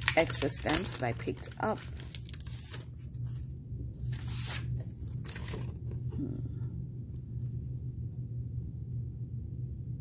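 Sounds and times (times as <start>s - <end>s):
plastic packaging crinkling: 0.0s - 3.5s, 4.1s - 6.0s
steady low hum: 0.0s - 10.0s.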